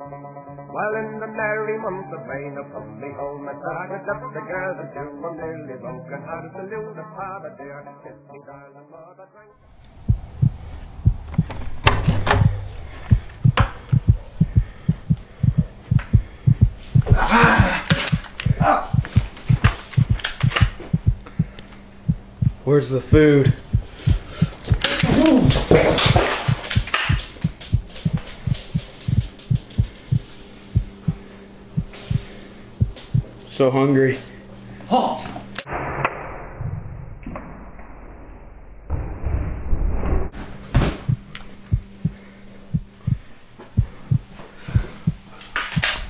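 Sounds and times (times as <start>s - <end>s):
steady low hum: 9.7s - 35.7s, 40.3s - 46.0s
rapid heartbeat thumps: 9.9s - 33.4s, 40.7s - 46.0s
quick footsteps on floor: 10.0s - 22.6s, 23.5s - 33.3s
sharp knocks: 10.0s - 22.6s.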